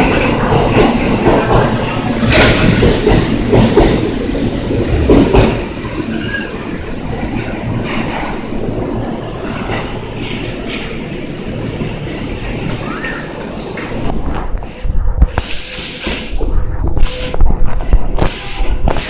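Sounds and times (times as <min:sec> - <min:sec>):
train wheels clacking over rail joints: 0:00.0 - 0:04.2, 0:04.9 - 0:05.6
train passing: 0:00.0 - 0:19.0.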